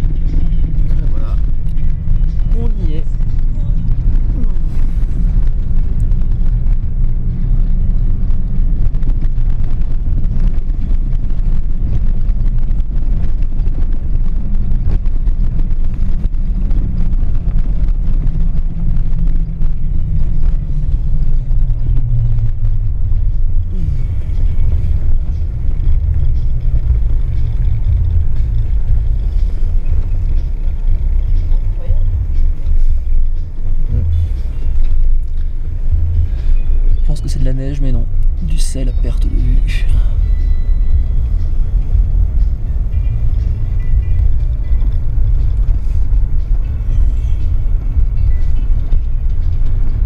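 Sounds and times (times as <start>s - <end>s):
vehicle engine and tyre rumble: 0.0s - 50.0s.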